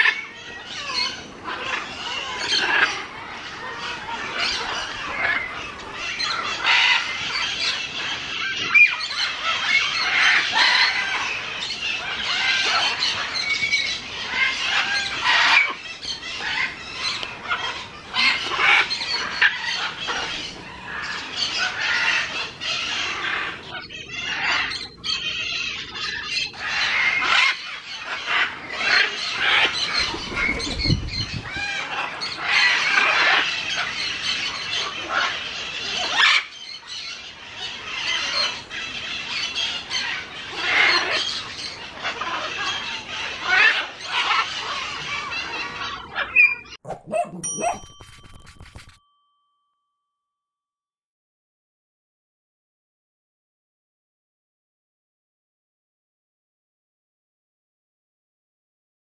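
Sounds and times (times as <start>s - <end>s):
parrot squawks: 14.3s - 15.8s, 17.4s - 30.5s, 31.4s - 33.9s, 37.6s - 49.0s.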